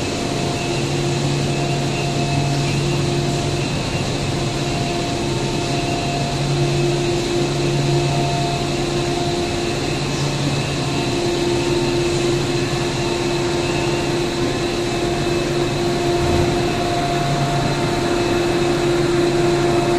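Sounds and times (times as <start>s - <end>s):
factory machinery hum: 0.0s - 19.9s
steady machine tones: 15.0s - 19.0s.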